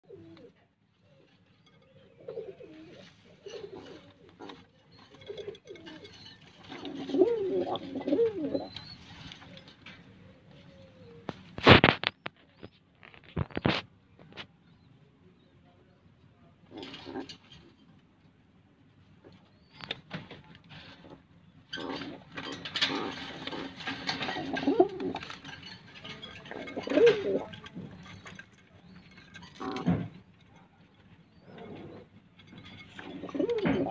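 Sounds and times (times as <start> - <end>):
pigeons cooing: 0.0 - 11.4, 21.7 - 33.9
rustling and clicking: 11.2 - 14.6, 19.2 - 33.9.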